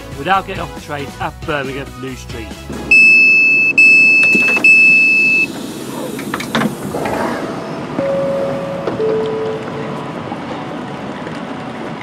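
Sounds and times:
door button high beep: 2.9s - 5.5s, 8.0s - 9.9s
train doors clunking open: 4.0s - 10.5s
two-note falling chime: 8.0s - 10.0s.

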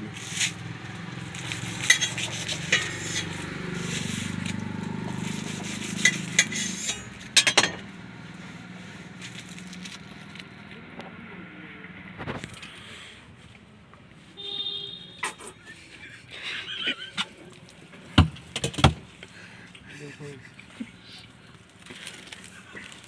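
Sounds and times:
foil crinkling: 0.1s - 6.5s, 9.1s - 10.6s, 21.3s - 23.0s
knife knocking and scraping metal: 1.8s - 3.4s, 5.6s - 7.9s.

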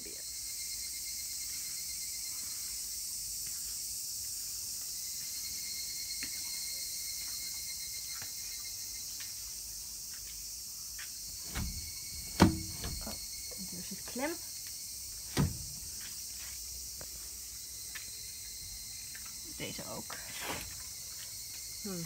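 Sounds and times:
insects droning: 0.0s - 22.0s
sliding door knocking: 11.5s - 13.2s.

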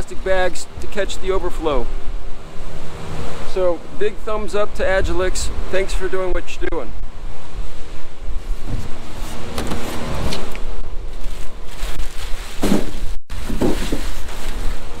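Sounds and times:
plastic bag crinkling: 11.1s - 15.0s
styrofoam rubbing and squeaking: 11.1s - 15.0s.

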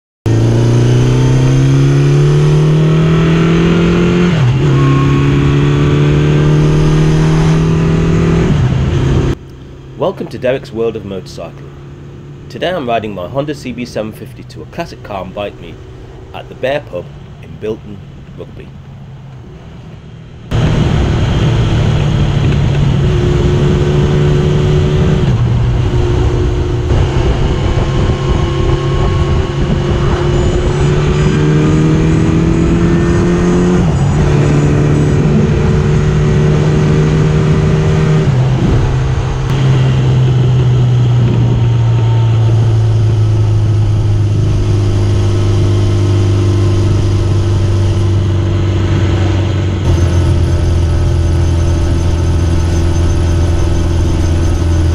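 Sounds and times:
motorcycle engine running: 19.9s - 54.9s.

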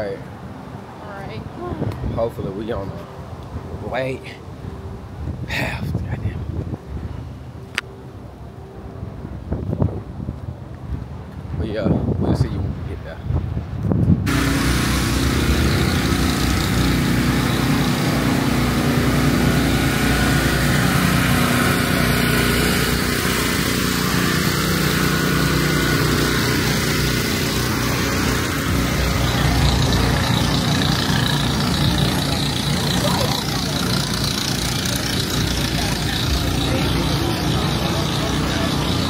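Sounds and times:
generators running: 14.3s - 39.0s.

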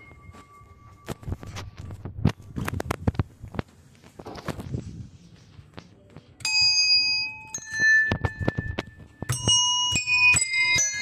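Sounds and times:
handbells ringing: 0.0s - 1.6s, 6.4s - 11.0s.

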